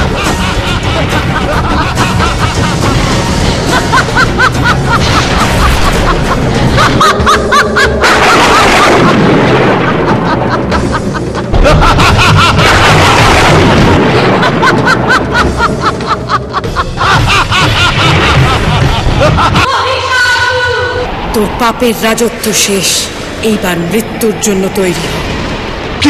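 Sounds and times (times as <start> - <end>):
loud booms and crashes: 0.0 - 16.3
dramatic battle music: 0.0 - 26.0.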